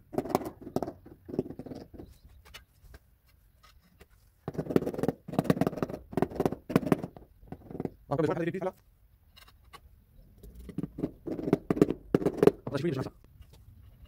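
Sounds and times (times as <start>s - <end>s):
rubber mallet tapping tile: 10.9s - 12.6s.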